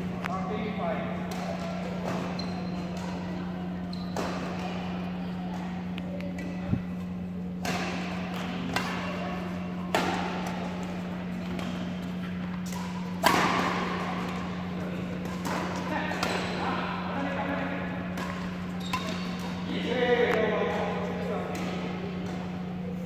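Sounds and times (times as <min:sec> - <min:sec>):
steady low hum: 0:00.0 - 0:23.0
rackets hitting shuttlecock: 0:07.5 - 0:16.6, 0:18.0 - 0:20.5.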